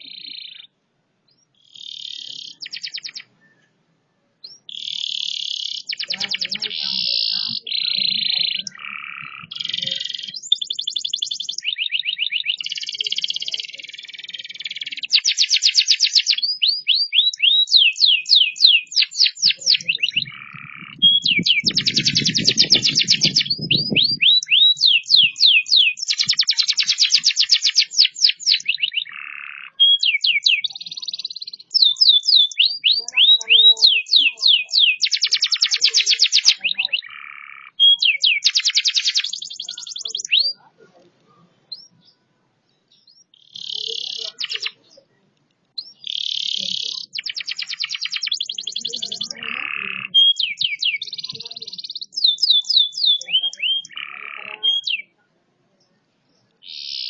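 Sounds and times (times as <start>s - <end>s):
canary singing: 0.0s - 3.8s, 4.4s - 55.2s, 56.4s - 57.0s.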